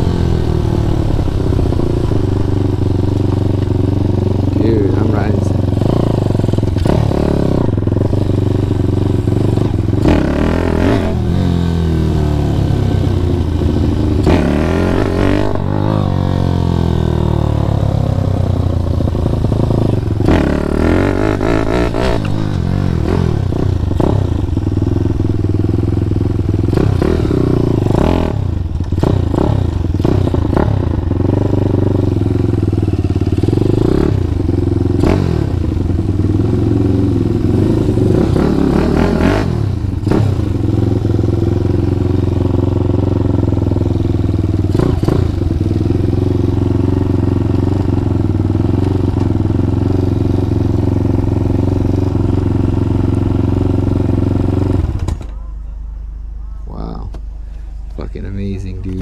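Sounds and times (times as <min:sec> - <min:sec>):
mini motorcycle engine revving: 0:04.5 - 0:49.8.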